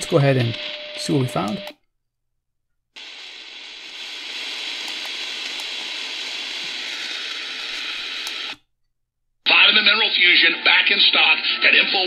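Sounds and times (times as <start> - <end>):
radio static hiss: 3.0 - 8.6.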